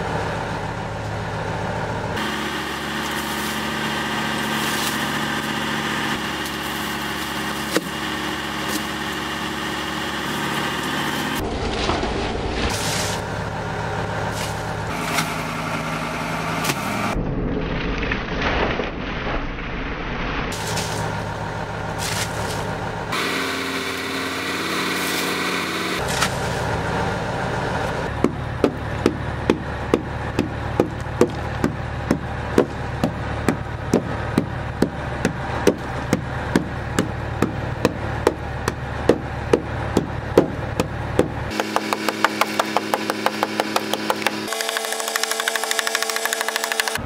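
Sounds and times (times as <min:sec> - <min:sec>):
engine hum: 0:00.0 - 0:47.0
ice being chipped: 0:41.5 - 0:47.0.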